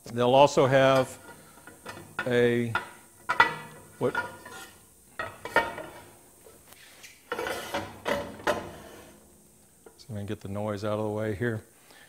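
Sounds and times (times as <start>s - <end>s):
metal fence clanking and knocking: 0.7s - 6.2s, 7.3s - 9.4s.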